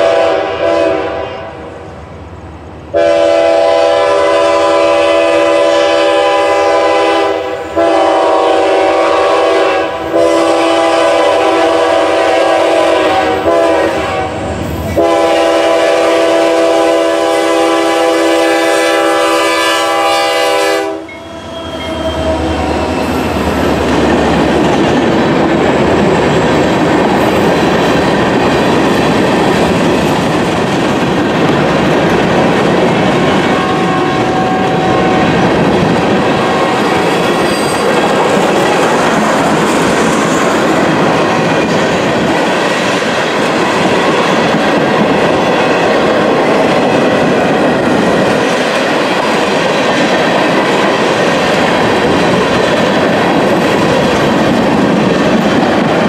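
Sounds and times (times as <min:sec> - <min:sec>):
locomotive horn blasts: 0:00.0 - 0:01.7, 0:02.9 - 0:22.7, 0:33.4 - 0:35.5, 0:36.4 - 0:37.8
diesel locomotive engine rumbling: 0:00.0 - 0:56.0
rattle and clack of rail cars: 0:02.2 - 0:19.6, 0:20.3 - 0:56.0.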